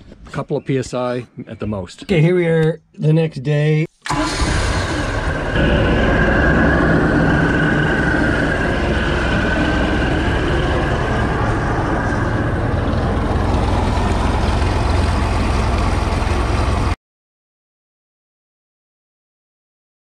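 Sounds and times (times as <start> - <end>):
boat engine idling: 4.1 - 17.0.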